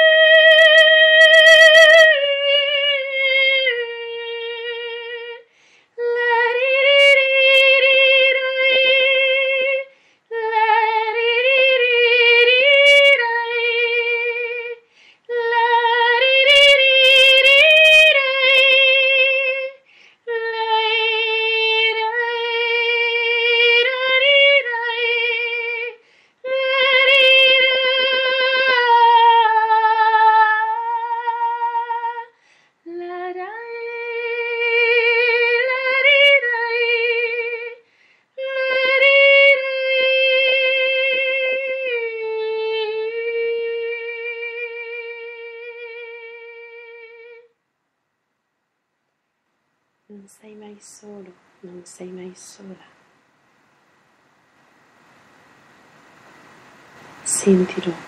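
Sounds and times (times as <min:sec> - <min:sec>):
woman singing held notes: 0:57.2 - 0:58.0.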